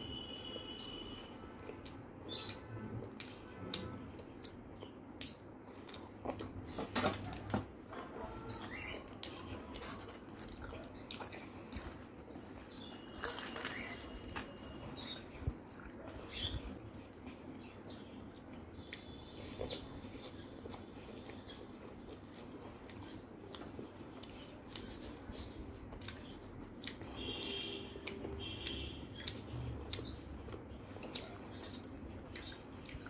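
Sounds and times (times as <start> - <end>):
wet chewing: 8.6 - 33.0.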